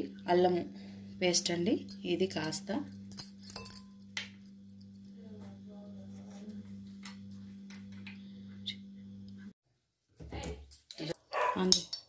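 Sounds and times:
low hum: 0.0s - 9.5s.

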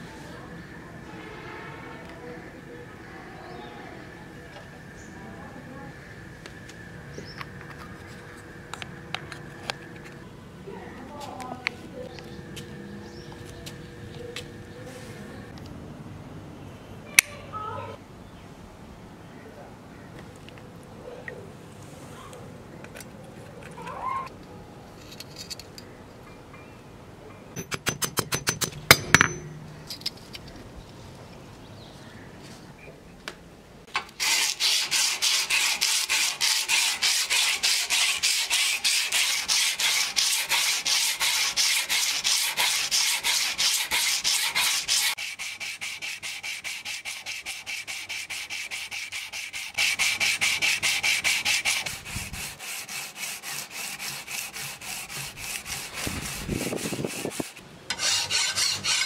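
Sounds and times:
sandpaper rasping on metal blade: 34.2s - 59.0s.

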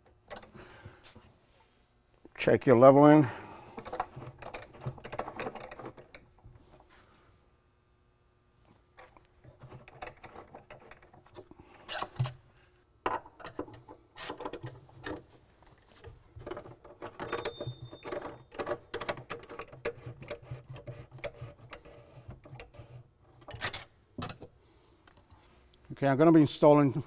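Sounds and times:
screwdriver clicking and scraping: 16.5s - 23.9s.

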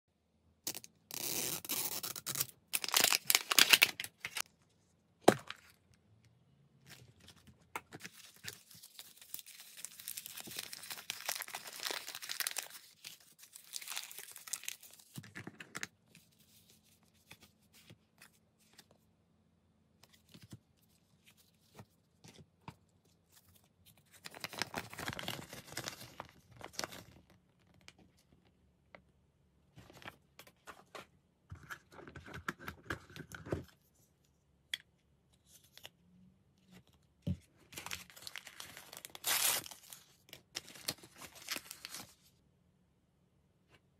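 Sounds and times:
plastic wrapping tearing: 0.7s - 4.4s, 8.4s - 15.0s, 38.0s - 40.0s
foil packets crinkling: 2.8s - 4.4s, 8.0s - 15.1s, 37.8s - 42.2s.

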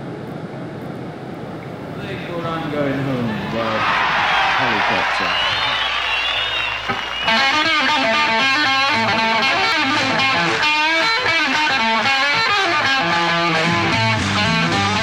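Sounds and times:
electric guitar run: 4.7s - 15.0s
bass line: 7.2s - 15.0s.

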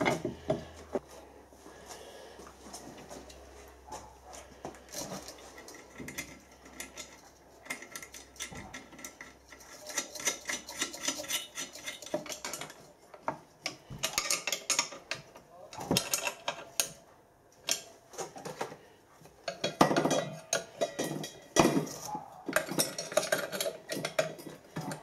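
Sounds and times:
metal clinks and scrapes: 4.3s - 17.0s, 19.4s - 25.0s.

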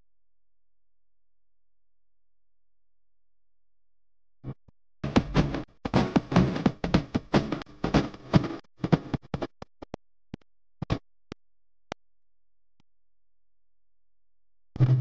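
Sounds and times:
background music with a beat: 5.0s - 9.5s.

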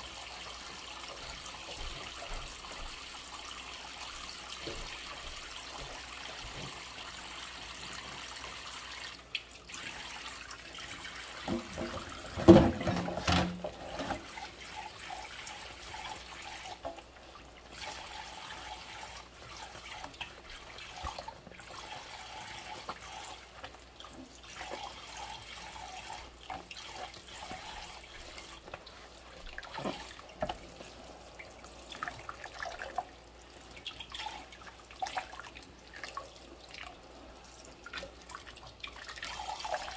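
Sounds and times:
water splashing in sink: 0.0s - 39.9s
small clicks and drips: 0.5s - 12.0s, 13.3s - 39.9s
clunk and splash: 4.6s - 6.9s, 11.3s - 15.2s, 15.8s - 17.1s, 19.2s - 31.0s.

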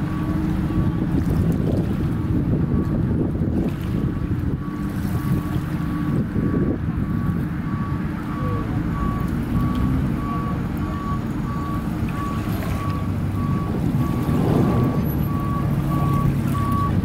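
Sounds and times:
wind rumble on microphone: 0.0s - 17.0s
reversing alarm beeping: 4.5s - 17.0s.

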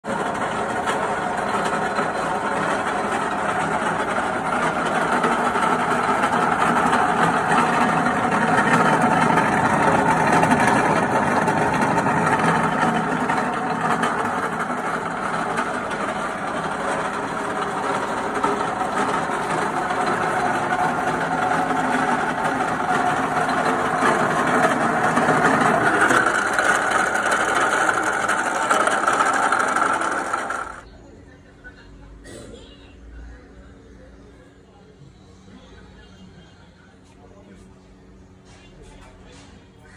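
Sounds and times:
drilling machine motor humming: 0.0s - 30.9s.

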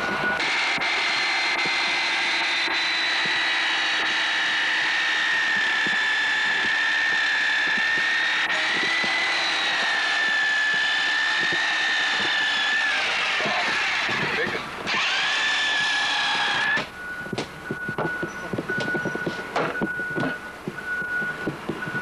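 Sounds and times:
machine running with high whine: 0.0s - 22.0s.

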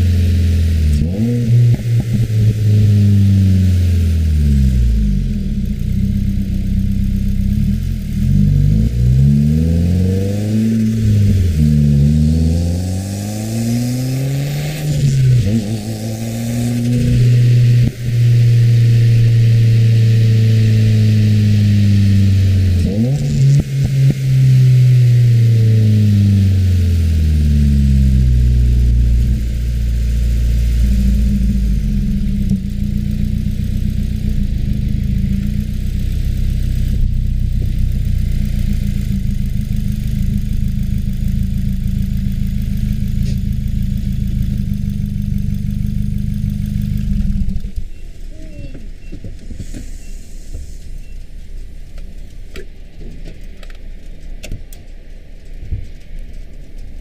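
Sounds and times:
car engine idling: 0.0s - 57.0s
faint clicks: 46.4s - 57.0s.

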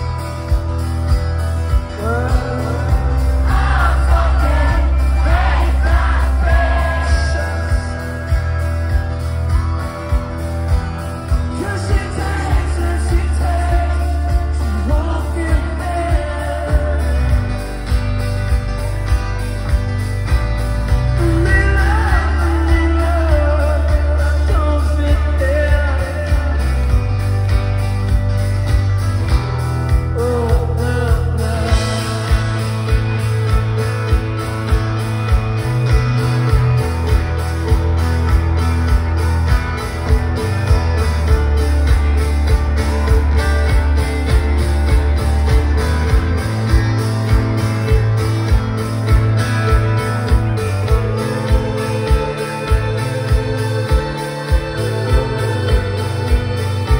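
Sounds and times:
bass guitar: 0.0s - 56.9s
electric guitar: 0.0s - 56.9s
steady drum beat: 0.0s - 56.9s
man singing: 1.7s - 8.8s, 11.3s - 18.0s, 20.9s - 27.5s, 30.0s - 34.2s, 49.7s - 56.9s.

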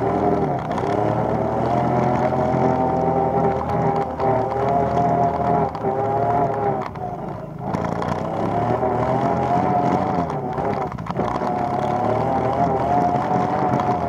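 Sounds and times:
atv engine running under throttle: 0.0s - 14.0s.

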